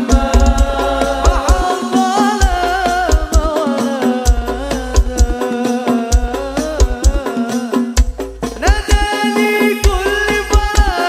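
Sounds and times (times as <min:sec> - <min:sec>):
deep boosted bass hits: 0:00.0 - 0:01.6
hand drums: 0:00.0 - 0:11.0
man singing: 0:00.0 - 0:11.0.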